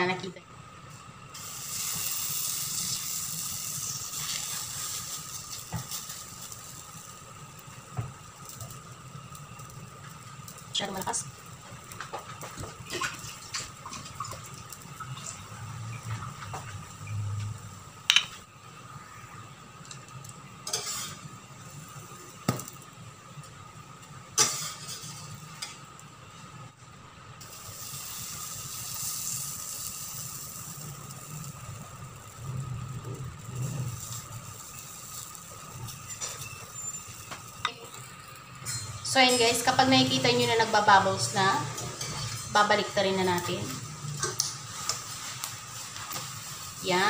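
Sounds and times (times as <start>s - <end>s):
batter sizzling in frying pan: 0.0s - 47.0s
metal spatula scraping pan: 20.7s - 21.2s, 41.6s - 42.8s.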